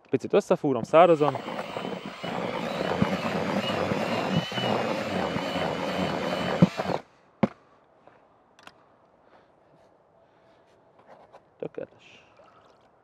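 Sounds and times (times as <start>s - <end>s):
cordless drill mixing in bucket: 0.8s - 7.0s.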